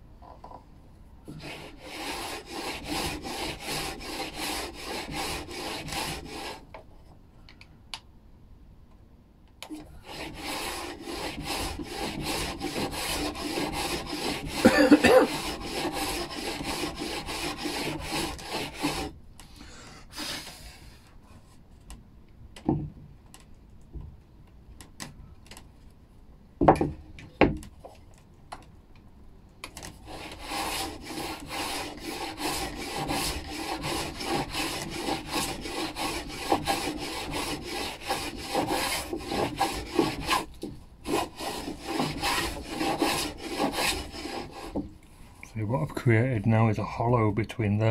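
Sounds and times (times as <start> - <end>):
hand plane shaving wood: 1.3 - 6.6, 10.0 - 19.1, 30.0 - 44.9
sharp wooden knocks: 26.6 - 27.7.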